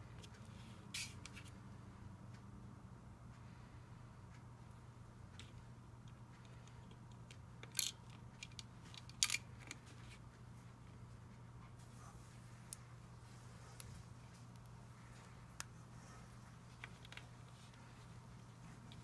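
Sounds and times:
faint low hum: 0:00.0 - 0:19.0
plastic toy bricks clicking: 0:07.6 - 0:09.8.

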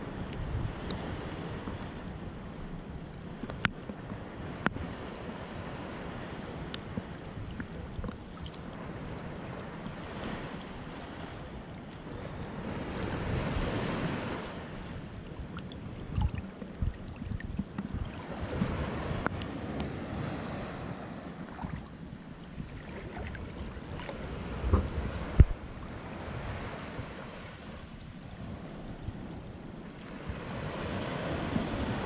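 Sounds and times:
ocean surf washing on shore: 0:00.0 - 0:32.0
wind on microphone: 0:00.0 - 0:32.0
gusts thumping on microphone: 0:24.1 - 0:27.1.

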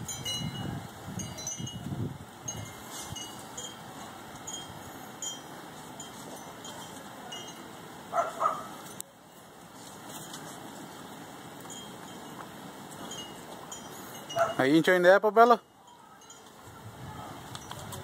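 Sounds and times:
faint high tinkling tones: 0:02.5 - 0:07.8, 0:11.6 - 0:12.4, 0:13.0 - 0:16.6.

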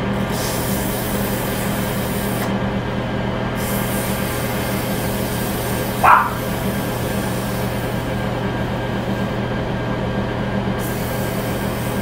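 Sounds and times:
dog bark: 0:06.0 - 0:06.6.

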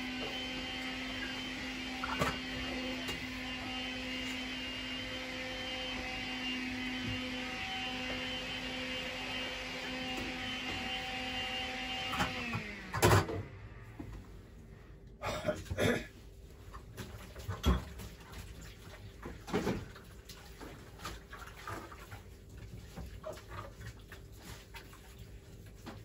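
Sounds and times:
dishes clinking in a metal sink: 0:17.4 - 0:18.2.

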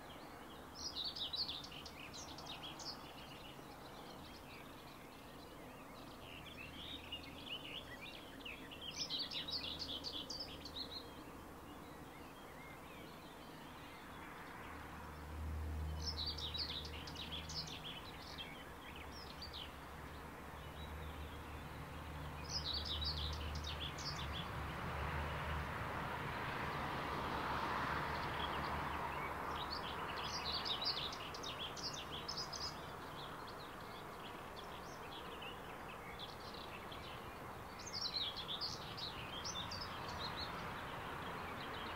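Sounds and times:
songbirds chirping: 0:00.0 - 0:41.9.

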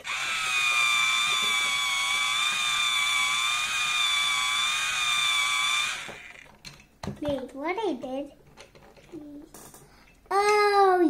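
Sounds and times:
toy drill motor whining: 0:00.0 - 0:06.7.

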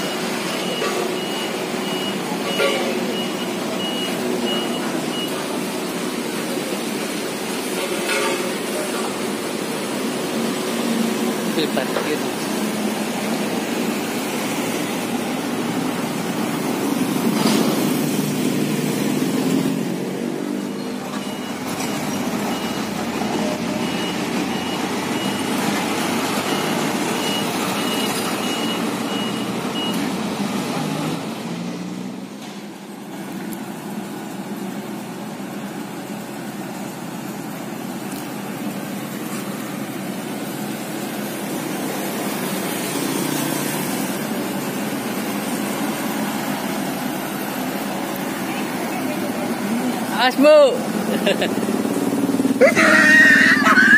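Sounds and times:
reversing alarm beeps: 0:00.0 - 0:05.5, 0:20.6 - 0:25.6, 0:26.4 - 0:30.1
road roller diesel engines: 0:00.0 - 0:53.9.

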